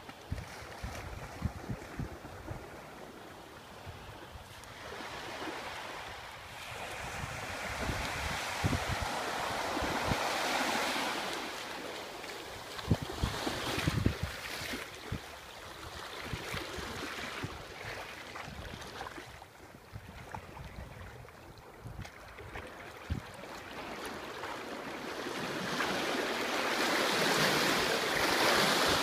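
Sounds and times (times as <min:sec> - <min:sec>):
small waves washing on beach: 0:00.0 - 0:29.0
wind buffeting microphone: 0:00.3 - 0:02.9, 0:06.2 - 0:10.8, 0:12.8 - 0:15.3, 0:16.2 - 0:23.4.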